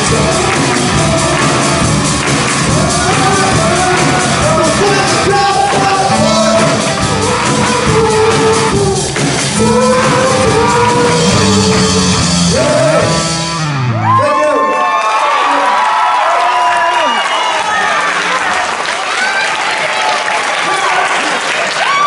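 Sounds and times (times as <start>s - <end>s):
drum kit: 0.0s - 14.2s
electric guitar: 0.0s - 14.2s
live rock band playing: 0.0s - 14.2s
man singing and shouting: 0.0s - 14.8s.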